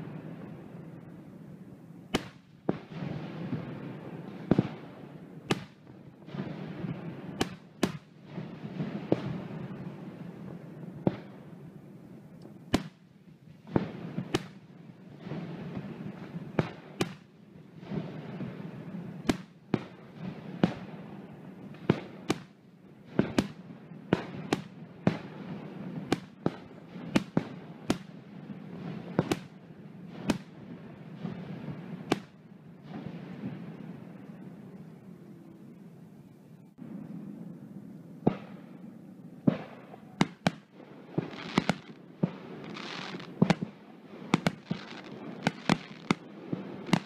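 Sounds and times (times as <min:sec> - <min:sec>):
fireworks bursting: 0:00.0 - 0:35.1, 0:36.6 - 0:47.0
steady noisy haze: 0:00.0 - 0:47.0.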